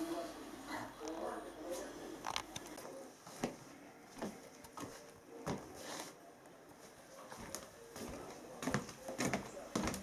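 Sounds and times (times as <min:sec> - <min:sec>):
soft footsteps on wooden floor: 0:02.8 - 0:10.0.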